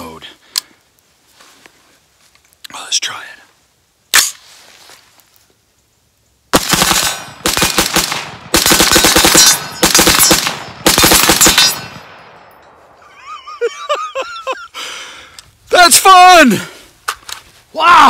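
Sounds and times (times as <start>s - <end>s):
rapid rifle gunfire: 6.5s - 11.9s
person laughing: 13.0s - 15.0s.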